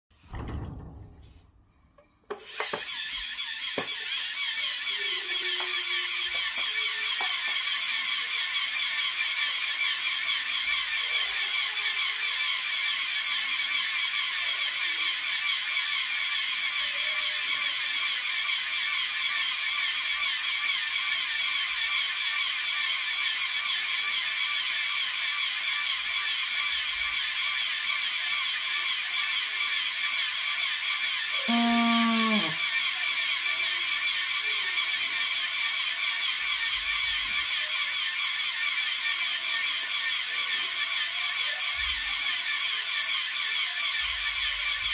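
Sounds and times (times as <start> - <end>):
small air compressor chattering: 2.2 - 44.9.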